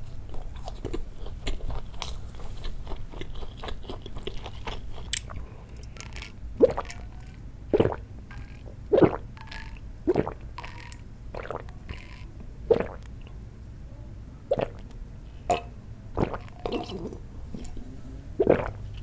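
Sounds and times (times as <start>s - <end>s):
wet swallowing gulps: 6.0s - 13.3s, 14.5s - 14.9s, 15.5s - 17.8s, 18.4s - 19.0s.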